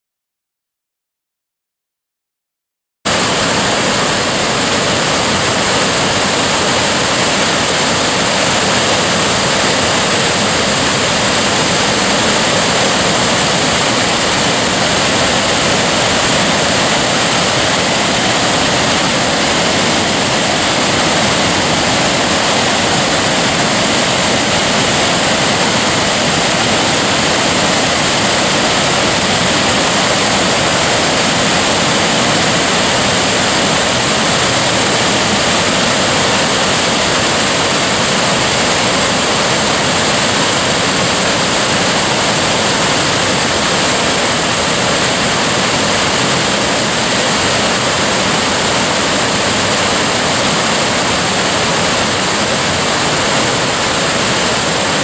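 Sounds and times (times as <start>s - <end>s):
waterfall rushing: 3.1s - 55.0s.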